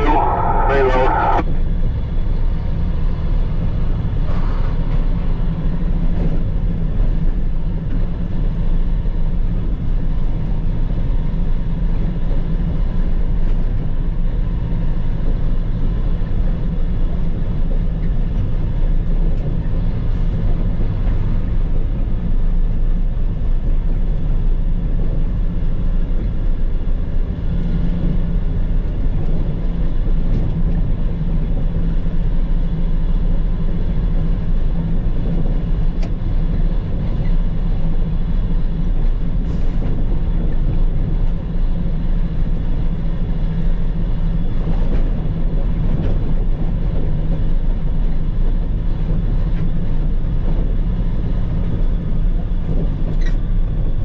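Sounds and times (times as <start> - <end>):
diesel truck engine droning: 0.0 - 4.2.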